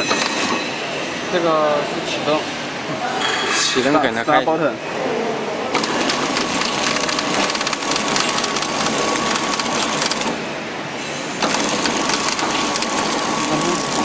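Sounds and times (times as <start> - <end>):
machine whine: 5.7 - 14.0
packaging machine clattering: 5.8 - 10.4, 11.4 - 14.0.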